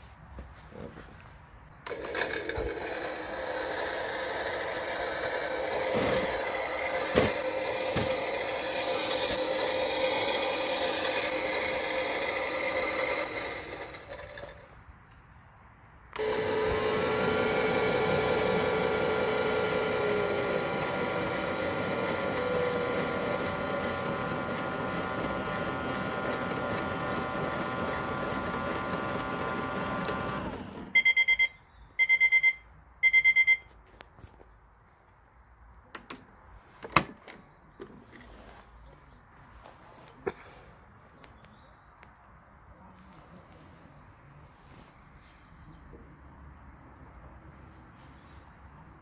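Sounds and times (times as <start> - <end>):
toy washing machine whirring: 1.8 - 14.7, 16.2 - 31.0
short beeps: 31.0 - 33.7.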